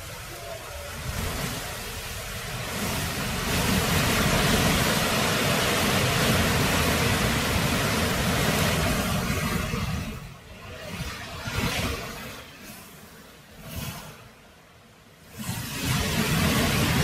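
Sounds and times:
gusty wind through trees: 0.0 - 17.0.

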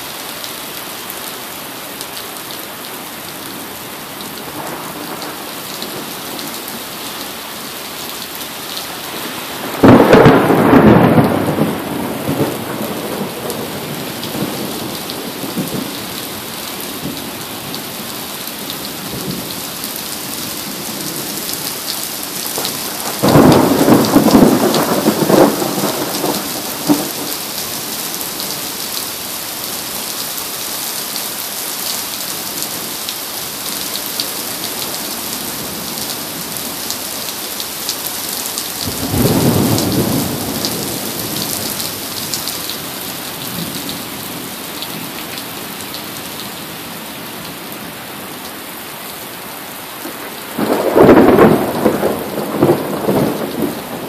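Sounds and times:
heavy rain on pavement: 0.0 - 54.0
thunder clap and rumble: 9.7 - 16.0, 22.6 - 27.4, 38.8 - 42.0, 50.2 - 54.0.

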